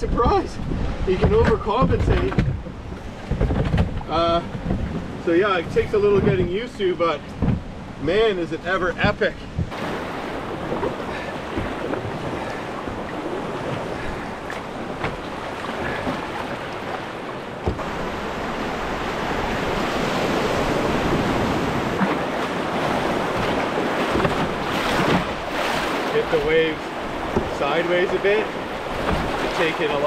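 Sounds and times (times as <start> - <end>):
rapids rushing: 9.0 - 30.0.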